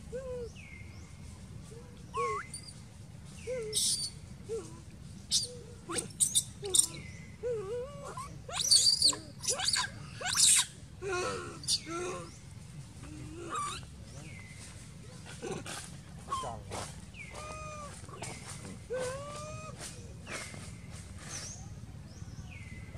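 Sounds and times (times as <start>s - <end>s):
baby monkey crying: 2.2s - 2.7s, 3.6s - 4.7s, 5.3s - 12.3s, 13.4s - 13.9s, 17.3s - 18.0s, 18.8s - 19.8s.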